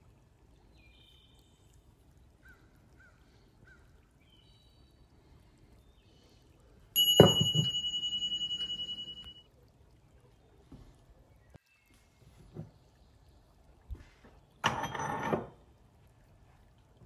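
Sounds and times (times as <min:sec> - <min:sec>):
metal disc ringing: 0:07.0 - 0:09.4
metal knocking on wooden bench: 0:07.2 - 0:07.8.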